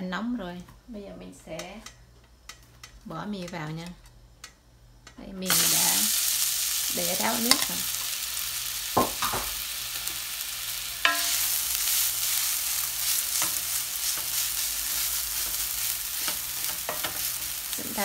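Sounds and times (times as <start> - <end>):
noodles sizzling in oil: 5.4 - 18.0
wooden spoon stirring and tapping pan: 11.0 - 11.5, 13.3 - 18.0.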